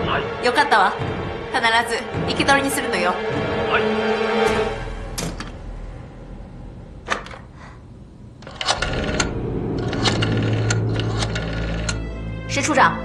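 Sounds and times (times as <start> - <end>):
low music drone: 0.0 - 13.0
rotary dial clicking: 8.4 - 12.0.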